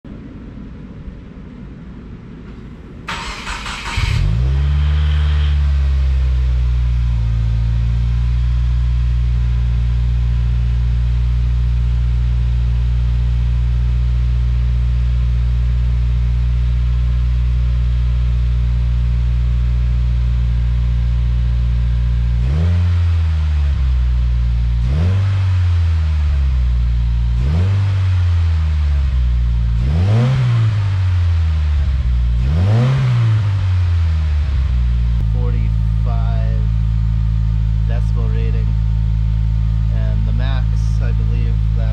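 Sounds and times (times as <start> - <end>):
car engine idling: 0.1 - 41.9
engine revving in quick blips: 3.1 - 6.5, 22.2 - 24.1, 24.7 - 37.0.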